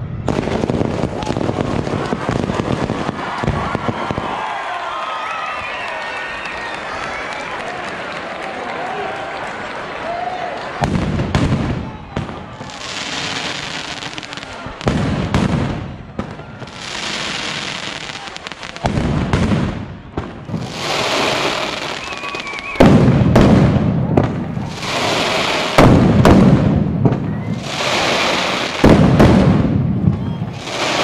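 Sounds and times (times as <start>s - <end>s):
heavy firecracker bangs: 0.0s - 4.4s, 10.8s - 31.0s
firecrackers crackling: 0.0s - 7.7s, 10.6s - 31.0s.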